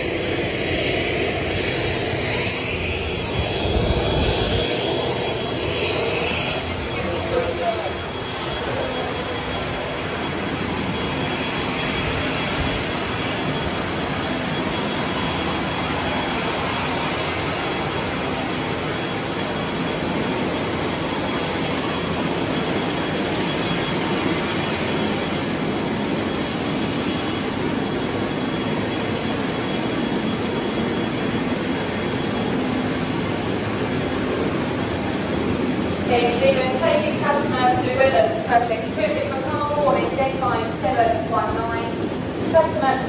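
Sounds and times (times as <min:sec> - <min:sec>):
jet turbine roaring: 0:00.0 - 0:43.0.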